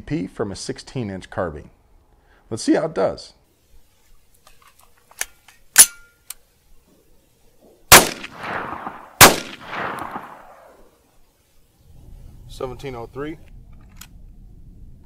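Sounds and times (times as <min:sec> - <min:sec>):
gunshots with long echo: 0:07.6 - 0:10.9.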